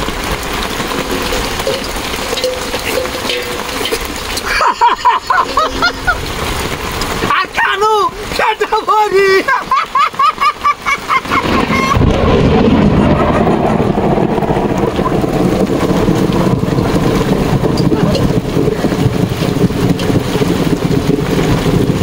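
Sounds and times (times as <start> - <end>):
rain hissing: 0.0 - 22.0
wind buffeting microphone: 11.2 - 22.0.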